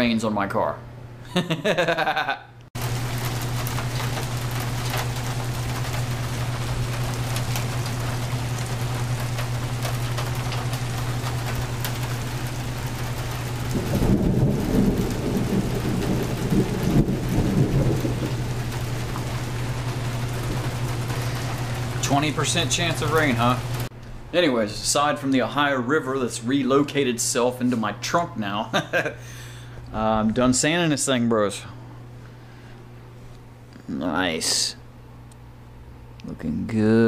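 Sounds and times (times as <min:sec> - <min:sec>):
low rumble of thunder: 0:02.8 - 0:22.0
rain pouring: 0:02.8 - 0:23.9.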